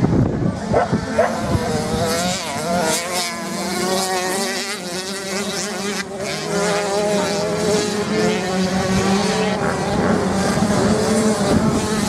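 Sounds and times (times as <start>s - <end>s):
dirt bike engines buzzing: 0.0s - 12.0s.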